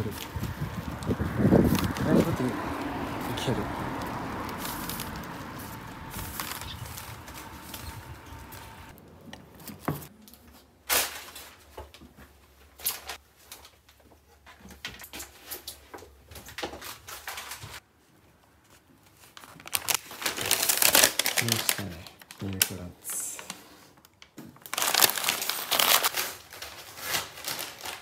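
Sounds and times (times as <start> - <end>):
wind and road noise: 0.0 - 10.2
paper wrapping crinkling: 0.0 - 11.8, 19.0 - 23.6, 24.5 - 28.0.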